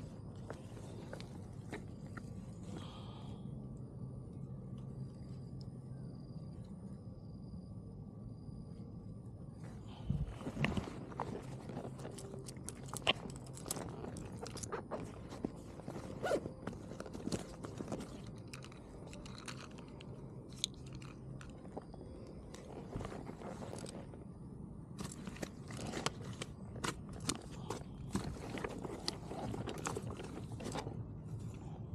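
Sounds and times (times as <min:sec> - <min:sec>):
low steady hum: 0:00.0 - 0:31.9
gear handling in grass: 0:09.6 - 0:19.7, 0:20.5 - 0:31.5.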